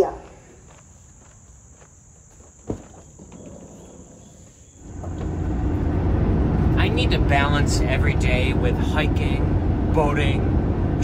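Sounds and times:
insects trilling: 0.0 - 5.6
road noise: 0.2 - 11.0
van engine rumble: 4.8 - 11.0.

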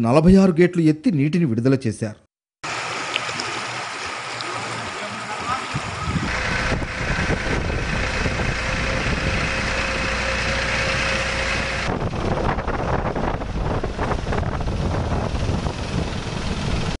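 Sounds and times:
rough choppy engine noise: 2.7 - 17.0
engine running with a whine: 5.8 - 17.0.

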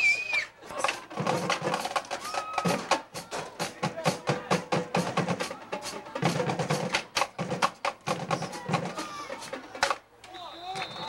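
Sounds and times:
drumline playing fast rhythm: 0.7 - 11.0.

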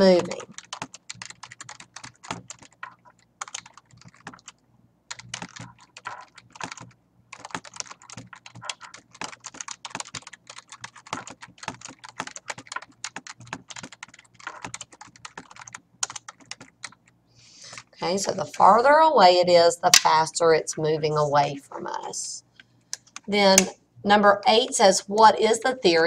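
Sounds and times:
computer keyboard typing: 0.0 - 17.9.

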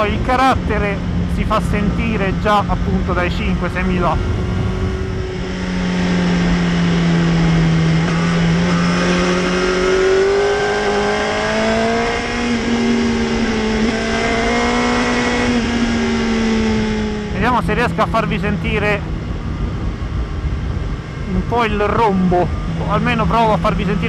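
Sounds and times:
wind rushing over microphone: 0.0 - 24.0
motorcycle engine under throttle: 4.2 - 21.7.

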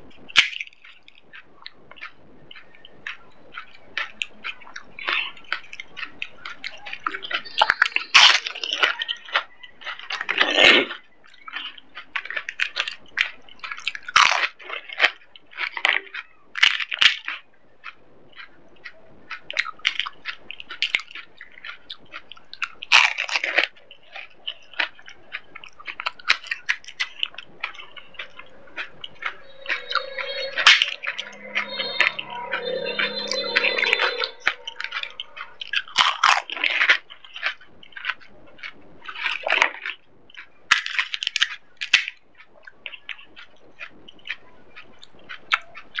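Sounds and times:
crunchy snack being chewed: 0.1 - 33.8, 34.7 - 46.0
mouth sounds: 27.0 - 36.2.

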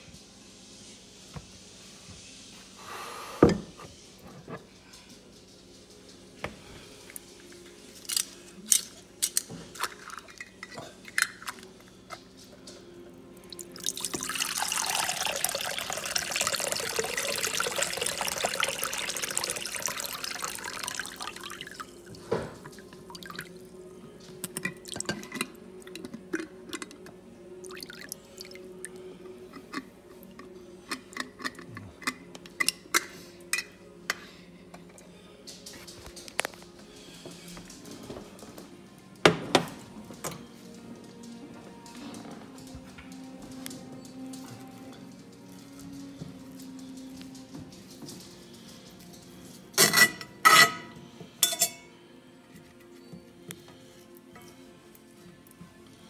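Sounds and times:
water dripping: 13.5 - 21.9
jars and bowl clicking and knocking: 13.8 - 21.9, 24.4 - 27.2, 29.5 - 33.7.

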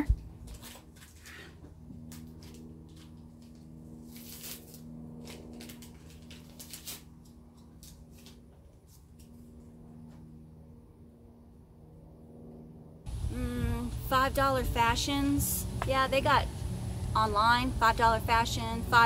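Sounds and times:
low steady hum: 0.0 - 19.0
paper wrapper crinkling: 2.2 - 9.3.

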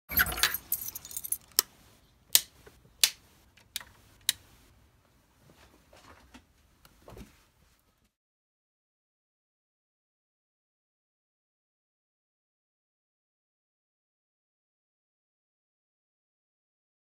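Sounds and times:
clattering clicks and clinks: 0.1 - 1.6.

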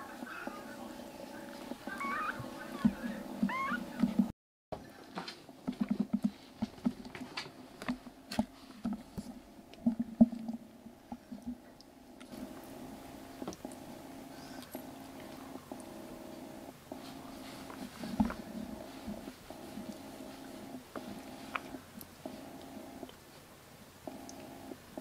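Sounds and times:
kittens rustling on towels: 0.0 - 4.3, 5.0 - 10.0, 16.9 - 23.5
low hum: 7.6 - 23.2.

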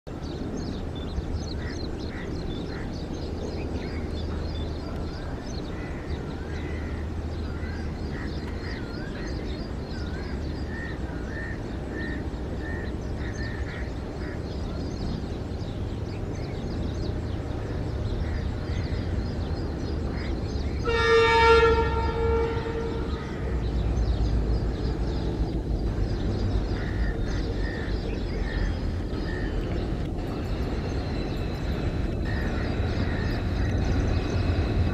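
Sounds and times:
diesel locomotive droning: 0.1 - 34.9
locomotive horn blast: 20.8 - 23.6.

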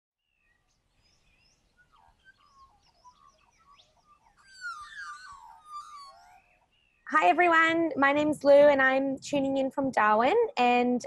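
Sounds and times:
birds chirping and whistling: 0.3 - 7.1.

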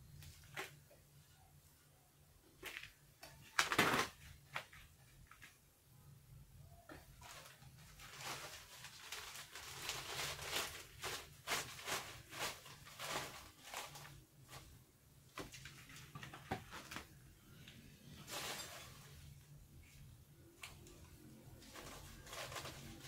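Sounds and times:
plastic bag rustling and crinkling: 7.0 - 17.2, 18.0 - 23.0.

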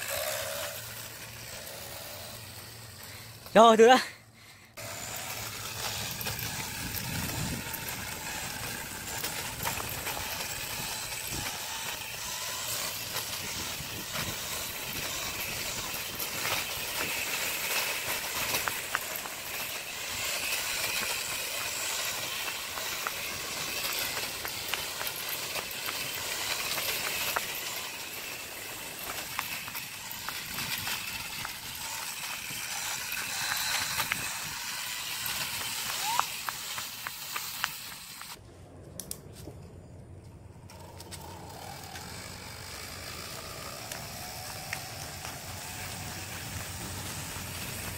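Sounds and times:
electric scooter rolling on concrete: 0.0 - 47.9
small clicks and rattles: 5.1 - 38.4
wind noise: 5.9 - 17.4.

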